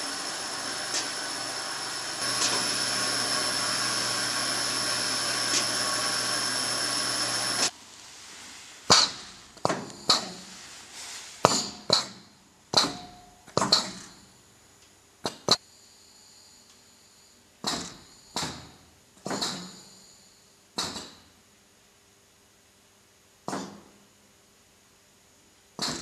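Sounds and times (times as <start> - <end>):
slicing machine short hisses: 0.0 - 7.7
faint steady hum: 14.1 - 25.8.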